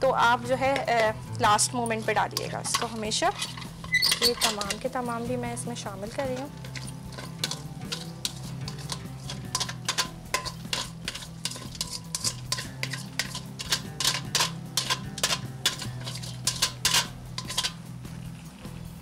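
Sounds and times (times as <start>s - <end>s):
metal strainer knocking on pot: 2.4s - 4.9s, 6.4s - 17.8s.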